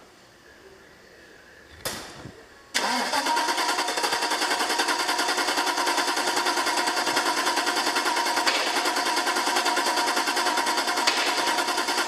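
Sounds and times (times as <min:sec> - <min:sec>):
car engine cranking: 0:02.8 - 0:12.0.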